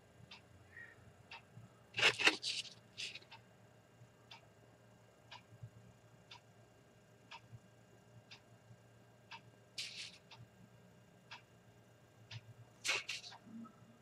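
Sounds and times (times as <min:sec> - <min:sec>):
clock ticking faintly: 0:00.2 - 0:00.6, 0:01.2 - 0:03.5, 0:05.3 - 0:06.5, 0:07.3 - 0:08.5, 0:09.3 - 0:10.6, 0:11.2 - 0:11.6, 0:12.2 - 0:13.8
paper sheet rustling: 0:02.0 - 0:03.2, 0:09.8 - 0:10.2, 0:12.9 - 0:13.3.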